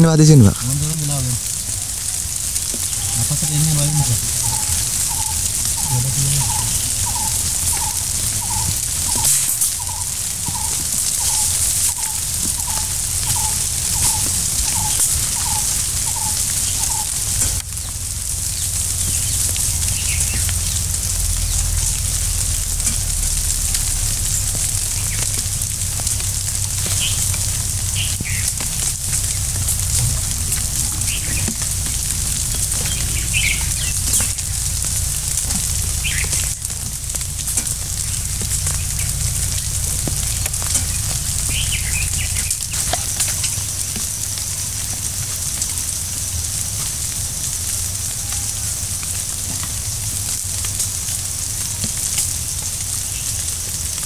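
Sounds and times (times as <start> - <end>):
steady high hiss: 0.0 - 54.0
low rumble: 0.6 - 48.1
bird chirps: 2.1 - 22.0, 26.8 - 28.6, 30.6 - 31.6, 32.4 - 34.9, 35.7 - 36.8, 40.2 - 43.7.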